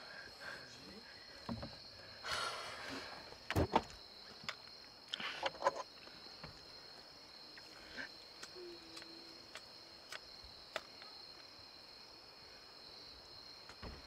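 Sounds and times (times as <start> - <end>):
high-pitched hiss: 0.0 - 14.0.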